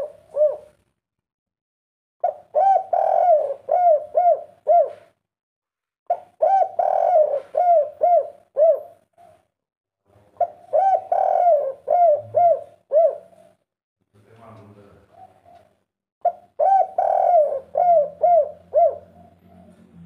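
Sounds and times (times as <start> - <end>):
dove cooing: 0.0 - 0.8, 2.2 - 5.2, 6.1 - 9.5, 10.4 - 13.6, 15.1 - 20.0.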